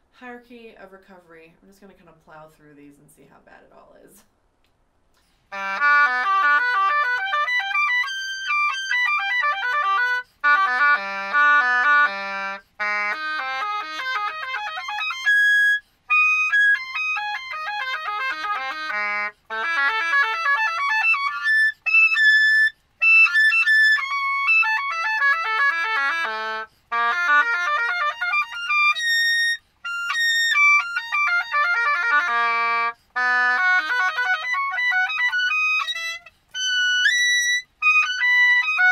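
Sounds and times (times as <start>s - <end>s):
bassoon playing arpeggios: 5.5s - 38.9s.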